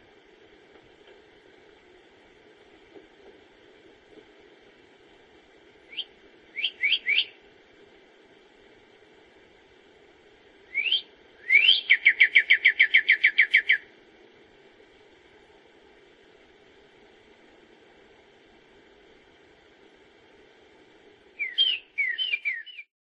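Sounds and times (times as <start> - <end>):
songbird whistling: 5.9 - 7.4, 10.7 - 13.8, 21.4 - 22.9.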